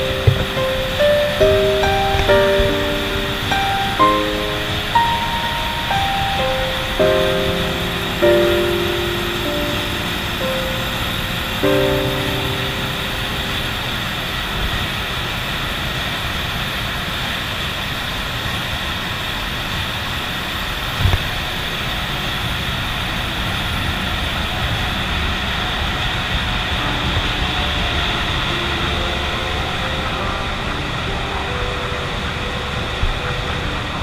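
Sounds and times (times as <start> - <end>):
engine room machinery din: 0.0 - 16.8
short low knock: 0.2 - 0.6.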